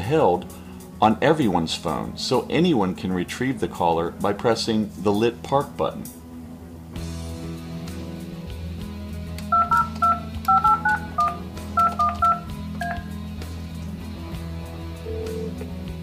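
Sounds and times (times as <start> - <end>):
phone keypad beeps: 9.5 - 13.1.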